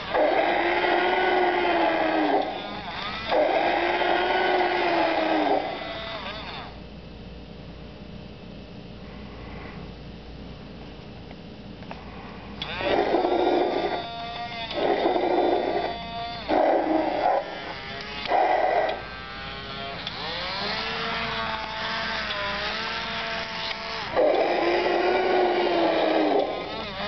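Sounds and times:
growling roars: 0:00.0 - 0:02.6, 0:03.3 - 0:05.8, 0:12.8 - 0:14.0, 0:14.7 - 0:15.9, 0:16.5 - 0:17.6, 0:24.1 - 0:26.8.

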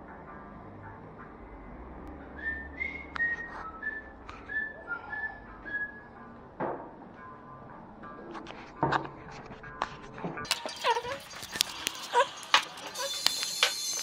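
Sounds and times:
whistled tune: 0:02.1 - 0:06.4.

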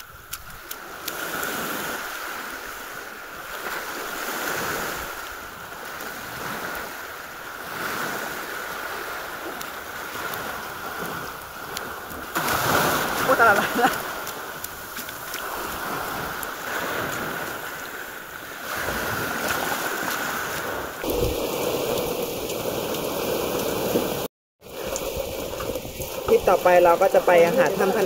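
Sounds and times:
sea waves washing in: 0:00.0 - 0:28.0.

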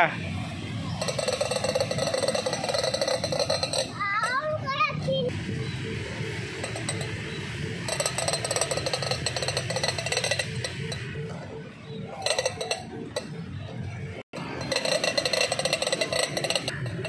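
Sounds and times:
push toy rattling clacks: 0:00.9 - 0:04.4, 0:07.8 - 0:11.4, 0:12.1 - 0:17.0.

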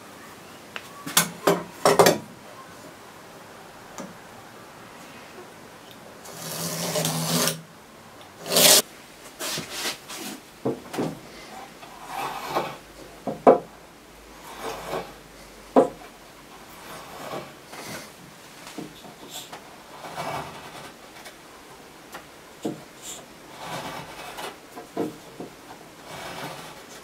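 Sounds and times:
metal tools scraping on wood: 0:06.2 - 0:07.6, 0:08.4 - 0:08.8, 0:11.8 - 0:12.9, 0:14.4 - 0:15.2, 0:16.6 - 0:18.1, 0:18.9 - 0:21.3, 0:22.6 - 0:27.0.

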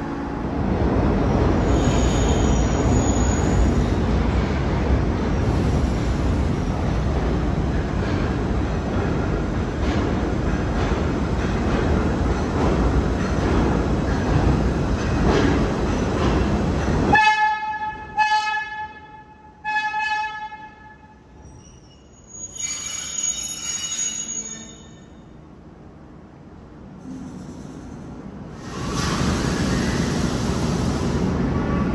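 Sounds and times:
subway train rumble: 0:00.0 - 0:31.9
train horn blasts: 0:17.1 - 0:21.2.

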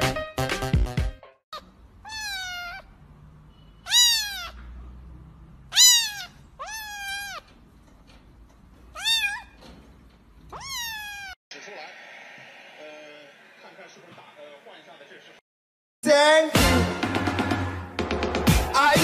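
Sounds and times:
kitten meowing: 0:02.0 - 0:02.9, 0:03.8 - 0:04.6, 0:05.7 - 0:07.5, 0:08.9 - 0:09.6, 0:10.5 - 0:11.4.

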